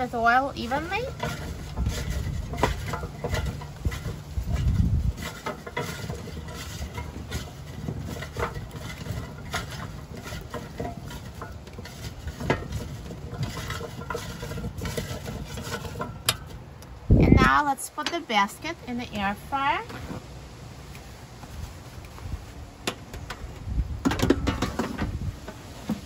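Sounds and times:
low rumble: 0.0 - 5.4, 16.6 - 17.6
squash cubes knocking in metal basket: 0.6 - 16.8.

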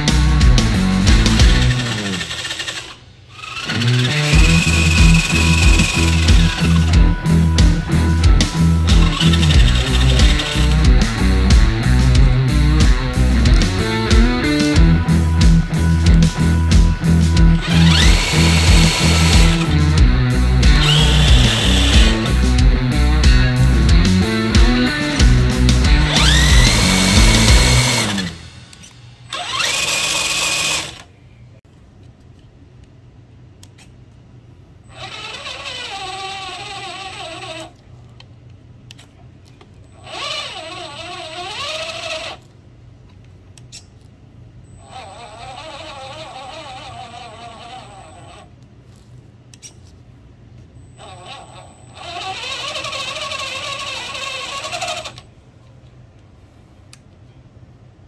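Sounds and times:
music: 0.0 - 2.3, 3.8 - 30.8
electric motor and gearbox running: 0.0 - 31.1, 34.9 - 37.8, 39.9 - 42.5, 44.8 - 49.0, 50.9 - 55.3
high electronic whine: 3.7 - 30.9.

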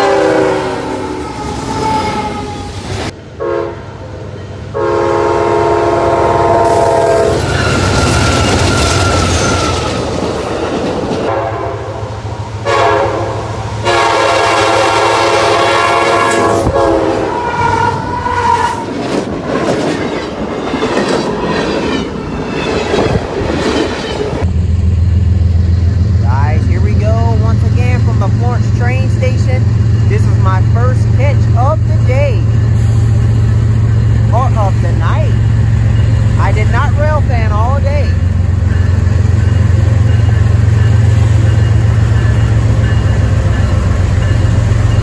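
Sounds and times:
locomotive air horn blasts: 0.0 - 2.5, 3.4 - 3.8, 4.8 - 8.5, 11.3 - 18.8
freight train wheels rumbling: 0.0 - 45.0.

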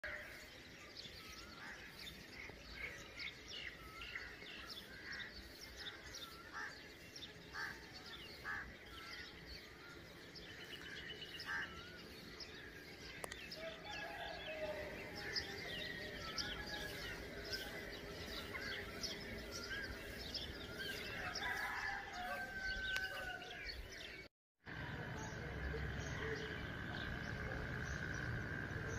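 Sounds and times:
birds chirping: 0.0 - 28.9
low outdoor hum: 24.7 - 28.9.

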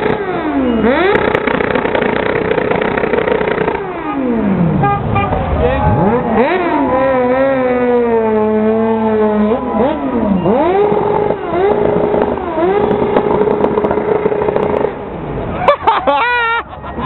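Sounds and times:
motorcycle engine revving: 0.0 - 15.3.

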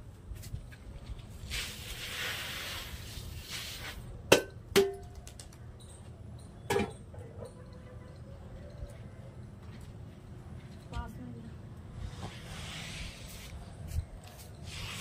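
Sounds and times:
grain pouring onto tarpaulin: 1.4 - 4.0.

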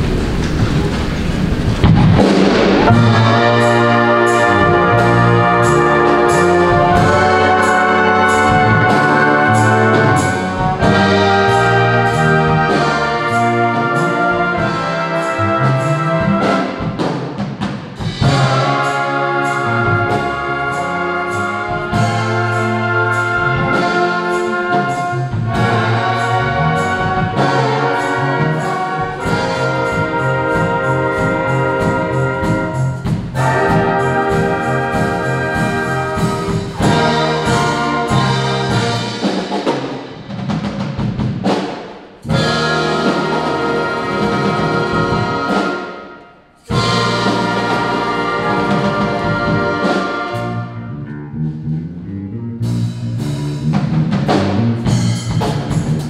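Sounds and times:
low bass line: 0.0 - 16.5, 50.4 - 56.0
wind band playing: 1.9 - 56.0
drum beat: 29.2 - 45.6.

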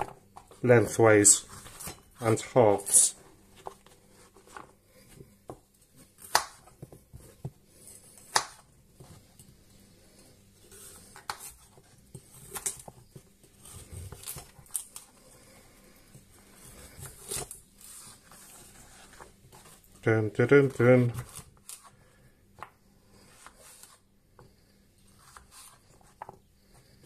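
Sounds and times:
carrot crunching and scraping: 0.0 - 20.0, 20.6 - 22.1.

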